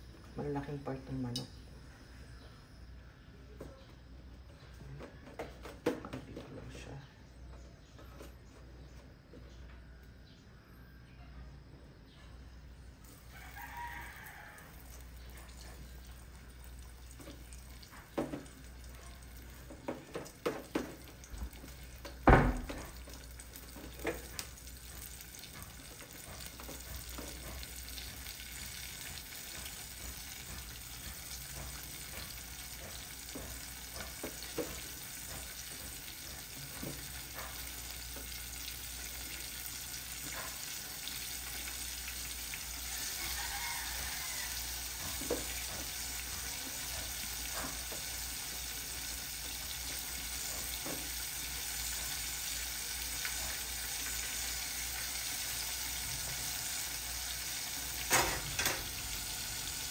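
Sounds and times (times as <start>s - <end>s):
chicken deep-frying in oil: 13.0s - 59.9s
sharp pops of frying oil: 19.6s - 39.3s, 57.7s - 59.8s.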